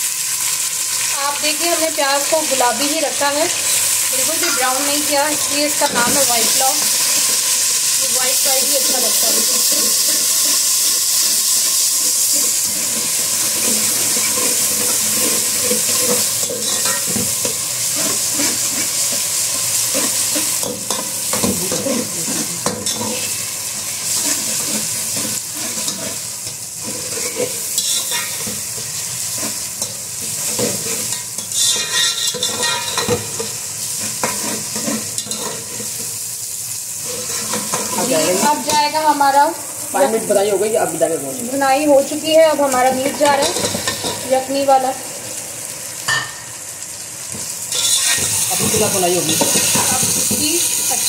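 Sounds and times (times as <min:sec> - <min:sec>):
onions sizzling in hot oil: 0:00.0 - 0:51.0
metal spoon scraping a pot: 0:12.3 - 0:23.4, 0:24.0 - 0:36.1, 0:37.0 - 0:38.9, 0:42.7 - 0:44.3, 0:47.7 - 0:50.4.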